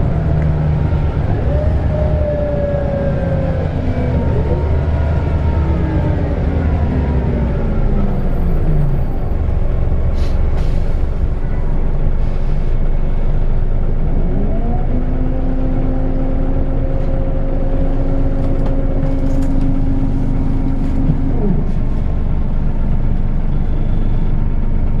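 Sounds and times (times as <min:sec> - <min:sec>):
bus engine rumble and whine: 0:00.0 - 0:25.0.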